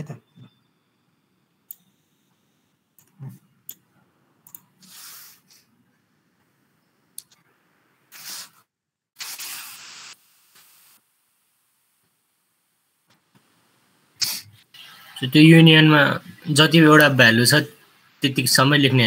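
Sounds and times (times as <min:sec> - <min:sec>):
computer mouse clicks: 0:04.4 - 0:04.7
short bursts of hiss: 0:04.8 - 0:05.7, 0:08.1 - 0:11.0, 0:14.2 - 0:15.1.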